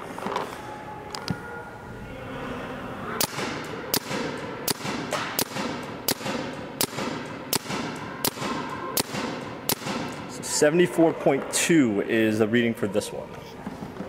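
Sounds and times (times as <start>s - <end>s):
paintball marker shots: 3.2s - 10.3s.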